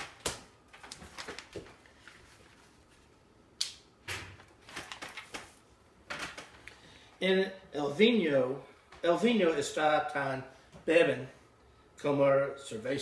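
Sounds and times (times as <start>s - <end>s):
paper rustling: 0.7s - 3.2s, 4.4s - 6.6s.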